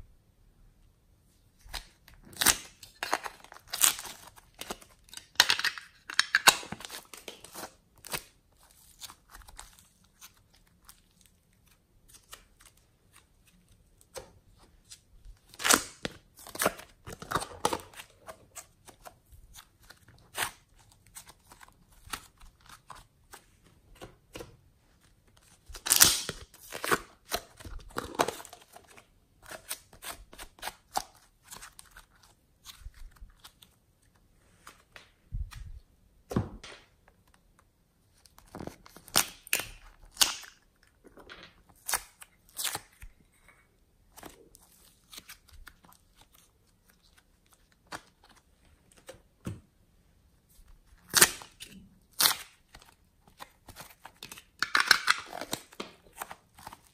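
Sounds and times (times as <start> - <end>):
clay peeling and tearing: 41.7 - 43.5.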